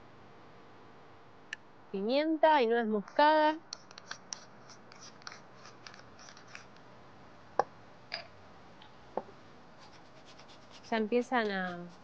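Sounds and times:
pepper mill grinding: 0:03.1 - 0:06.8.

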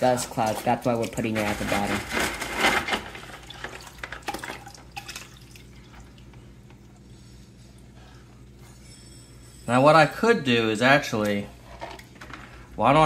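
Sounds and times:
faint steady hum: 0:00.0 - 0:13.0
water splashing in bucket: 0:00.4 - 0:06.3.

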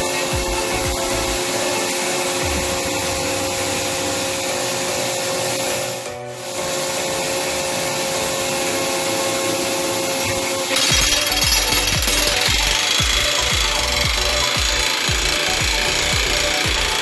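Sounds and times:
drilling rig drilling rock: 0:00.0 - 0:05.9, 0:10.3 - 0:17.0.

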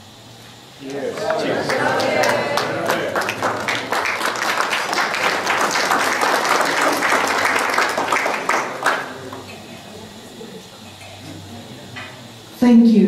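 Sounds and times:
crowd applauding: 0:00.8 - 0:10.1.

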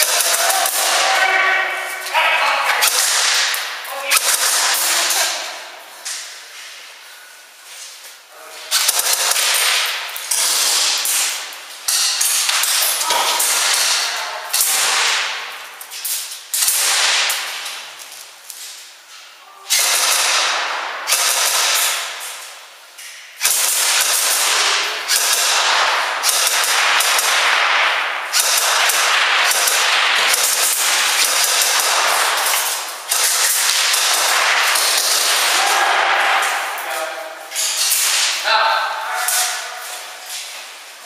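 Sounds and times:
airsoft guns firing bursts: 0:00.0 - 0:01.2, 0:02.8 - 0:05.4, 0:08.7 - 0:11.5, 0:12.2 - 0:15.5, 0:16.6 - 0:17.6, 0:19.7 - 0:22.2, 0:23.4 - 0:36.2.

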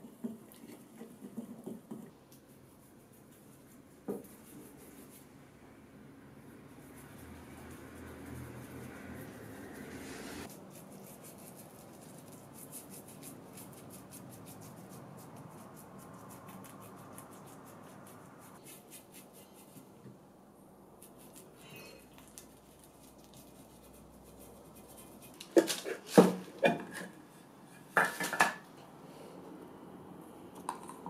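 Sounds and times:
brush tapping and dabbing: 0:00.0 - 0:05.3, 0:21.0 - 0:26.8
paintbrush scrubbing swish: 0:06.7 - 0:20.0, 0:21.0 - 0:26.0.

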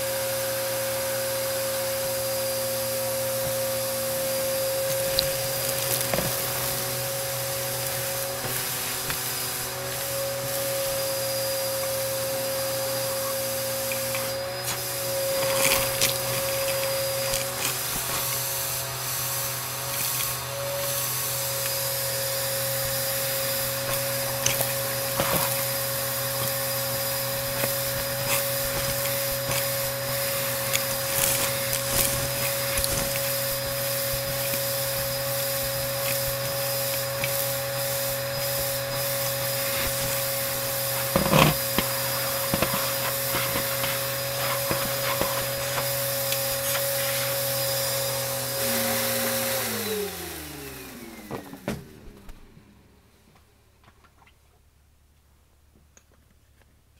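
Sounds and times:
vacuum cleaner motor whine: 0:00.0 - 0:53.0
debris crackling being sucked up: 0:13.6 - 0:47.8.

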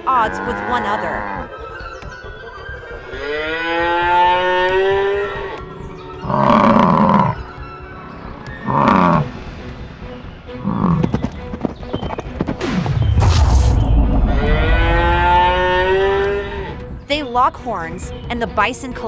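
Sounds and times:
cattle mooing: 0:00.0 - 0:01.5, 0:06.2 - 0:07.4, 0:08.6 - 0:09.3, 0:14.3 - 0:16.8
cattle bellowing: 0:06.2 - 0:07.5, 0:08.6 - 0:09.3, 0:14.3 - 0:16.8.

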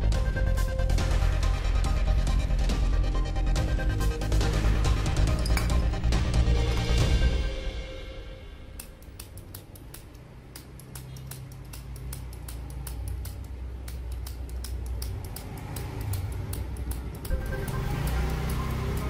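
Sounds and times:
lancing pen clicking rapidly: 0:08.8 - 0:17.4.

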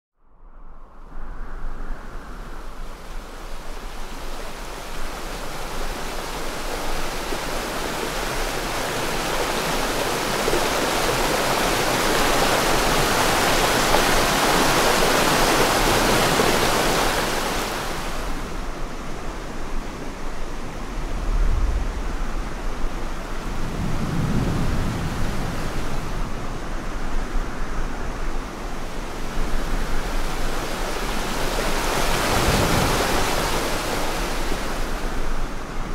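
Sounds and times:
creek water rushing: 0:02.9 - 0:27.2, 0:27.9 - 0:35.9
low rumbles: 0:20.1 - 0:25.5.

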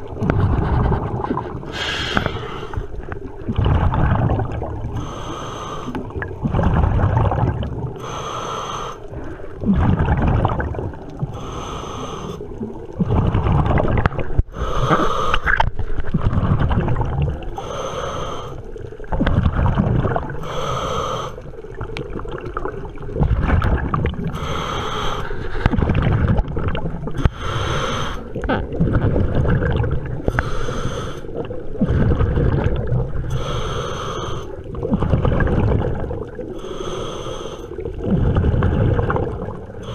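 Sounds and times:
exhalation bubbling: 0:00.0 - 0:05.0, 0:05.9 - 0:08.0, 0:09.6 - 0:11.6, 0:12.5 - 0:17.6, 0:19.0 - 0:20.4, 0:21.6 - 0:24.4, 0:28.2 - 0:30.4, 0:31.3 - 0:33.6, 0:34.5 - 0:37.0, 0:37.7 - 0:39.9
regulator hissing inhale: 0:01.7 - 0:03.0, 0:05.0 - 0:06.1, 0:08.0 - 0:09.5, 0:11.4 - 0:12.5, 0:14.5 - 0:15.6, 0:17.6 - 0:18.7, 0:20.4 - 0:21.5, 0:24.3 - 0:25.7, 0:27.2 - 0:28.3, 0:30.3 - 0:31.4, 0:33.3 - 0:34.6, 0:36.6 - 0:37.8.

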